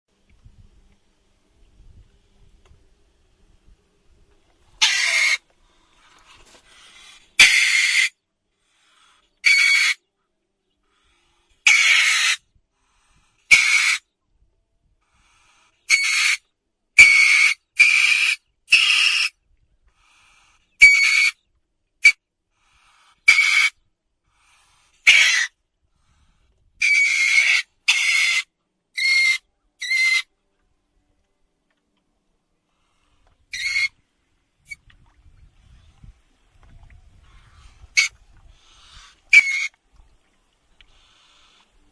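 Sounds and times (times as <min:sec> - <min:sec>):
otter screaming: 0:04.8 - 0:05.4, 0:07.4 - 0:08.1, 0:11.7 - 0:12.4, 0:25.1 - 0:25.5, 0:26.8 - 0:28.4.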